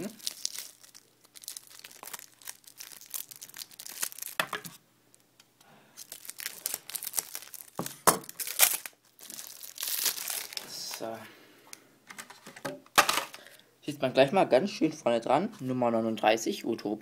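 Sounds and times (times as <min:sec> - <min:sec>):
plastic wrapping crinkling: 0:00.0 - 0:05.2, 0:06.0 - 0:11.1.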